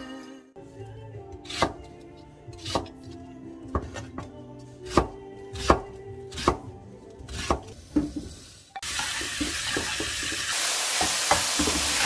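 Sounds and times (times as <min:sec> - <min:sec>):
soft background music: 0:00.0 - 0:10.4
knife chopping on wooden board: 0:01.4 - 0:03.1, 0:03.7 - 0:04.3, 0:04.9 - 0:06.7, 0:07.3 - 0:08.2.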